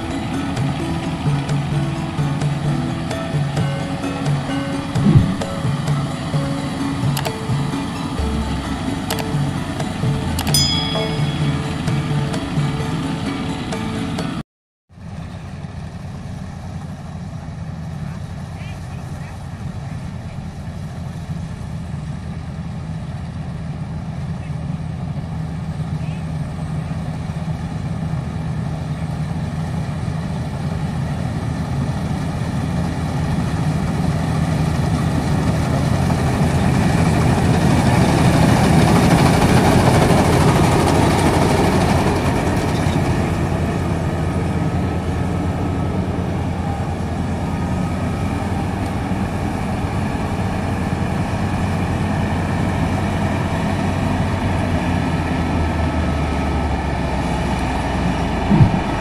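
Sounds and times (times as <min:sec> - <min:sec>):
combine harvester running: 0:00.0 - 0:14.4, 0:15.0 - 0:59.0.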